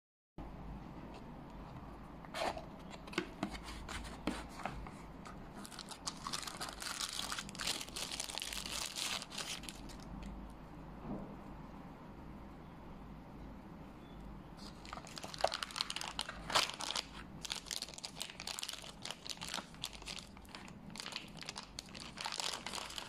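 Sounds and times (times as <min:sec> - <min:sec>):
plastic bag crinkling: 0:05.5 - 0:10.3, 0:14.6 - 0:23.0.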